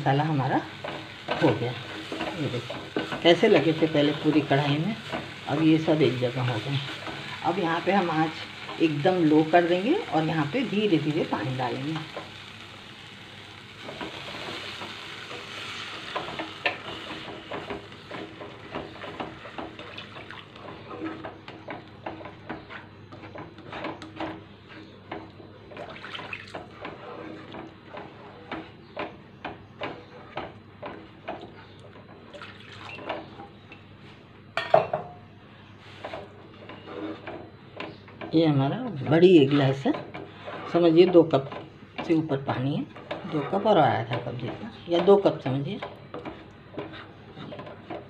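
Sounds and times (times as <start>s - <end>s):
water hissing in hot pan: 0.0s - 20.6s
spatula stirring and scraping pan: 0.0s - 34.7s, 35.5s - 48.0s.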